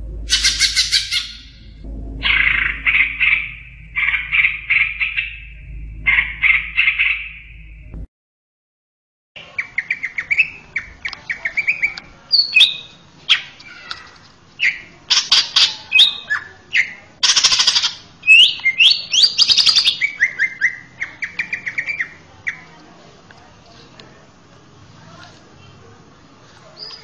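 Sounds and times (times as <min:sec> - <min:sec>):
bird singing fast varied song: 0:09.4 - 0:13.9, 0:14.6 - 0:22.7.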